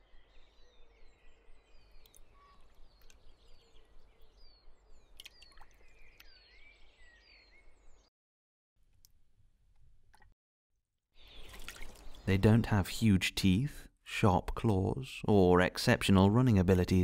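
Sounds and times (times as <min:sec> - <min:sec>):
small birds chirping: 0:00.0 - 0:08.1, 0:11.2 - 0:13.6.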